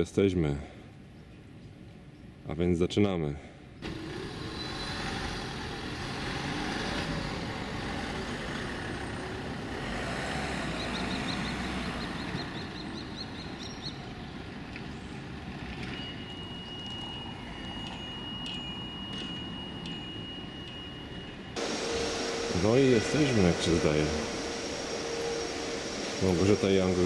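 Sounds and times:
road noise: 0:00.0 - 0:27.0
truck engine running: 0:03.8 - 0:12.4, 0:21.6 - 0:27.0
steady high tone: 0:16.0 - 0:27.0.

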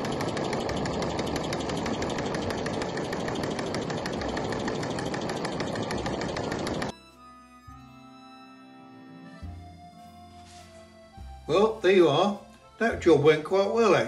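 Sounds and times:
toy steam engine ticking: 0:00.0 - 0:06.9.

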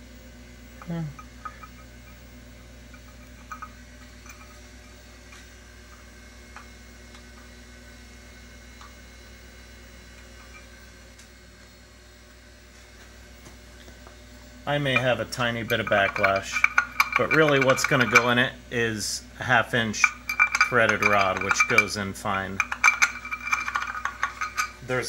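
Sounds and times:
electrical hum of shop equipment: 0:00.0 - 0:25.0.

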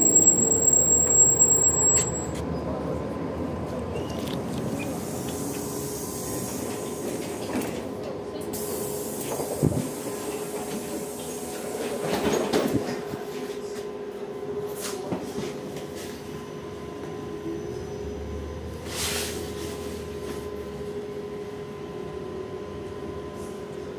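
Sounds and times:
road and tyre noise: 0:00.0 - 0:07.5.

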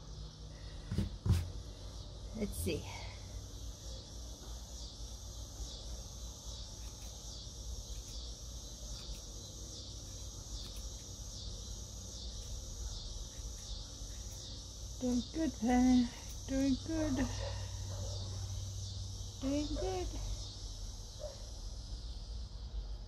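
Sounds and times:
insects chirping: 0:00.0 - 0:23.0.

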